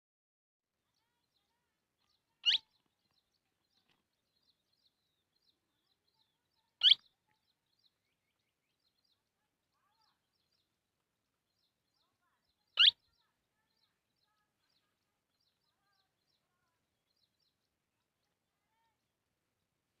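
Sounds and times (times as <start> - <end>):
faint bird chirps: 0.8 - 10.8, 11.5 - 19.0
parakeet shrill calls: 2.4 - 2.6, 6.8 - 7.0, 12.8 - 13.0.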